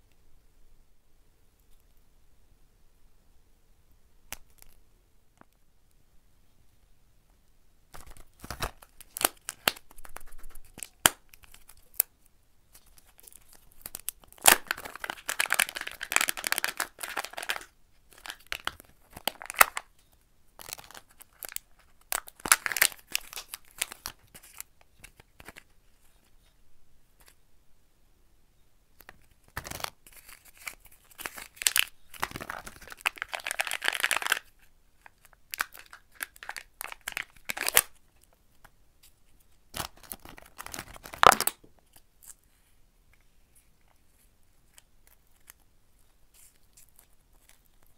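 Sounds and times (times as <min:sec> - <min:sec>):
plastic wrapper tearing and crinkling: 0:07.9 - 0:12.1, 0:12.7 - 0:19.9, 0:20.6 - 0:25.7, 0:29.2 - 0:38.3, 0:39.8 - 0:42.4, 0:44.6 - 0:47.9.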